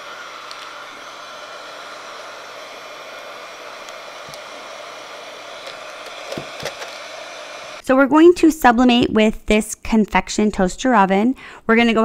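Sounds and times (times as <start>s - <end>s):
heat gun blowing air: 0.0s - 7.8s.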